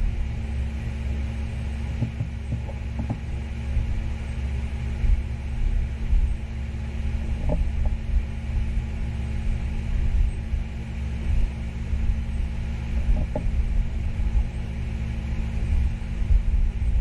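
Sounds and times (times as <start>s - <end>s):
constant hum: 0.0s - 17.0s
low rumble: 0.0s - 17.0s.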